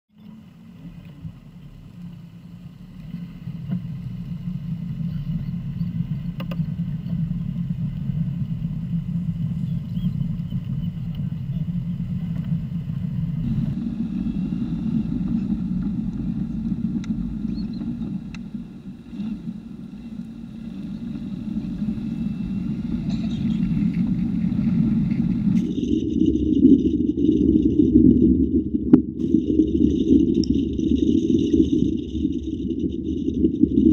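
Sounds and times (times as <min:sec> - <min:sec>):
road noise: 0:00.4 - 0:26.1
car engine: 0:11.0 - 0:26.0.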